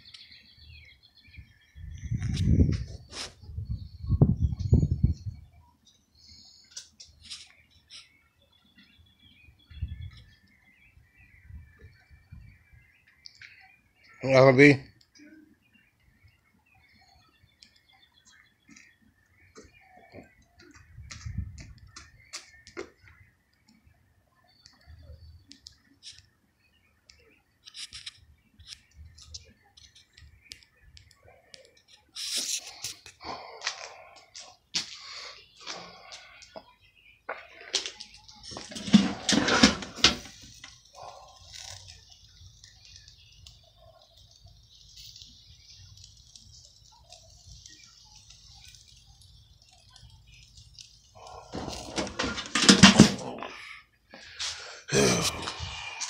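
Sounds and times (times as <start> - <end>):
small birds chirping: 0.0 - 56.0
meat sizzling on grill: 38.1 - 51.9
metal grill lid clanking: 38.7 - 40.4, 51.5 - 53.2.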